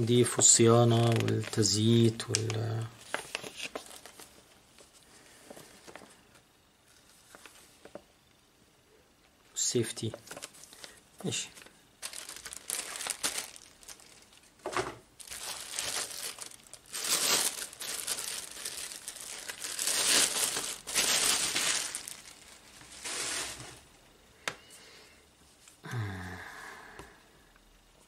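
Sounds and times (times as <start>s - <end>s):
plastic wrapping crinkling: 0.4s - 6.4s, 10.0s - 23.8s.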